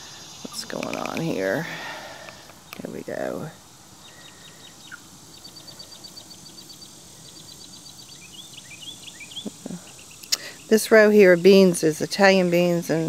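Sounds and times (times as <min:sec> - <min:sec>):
small bird chirping: 0:00.0 - 0:13.0.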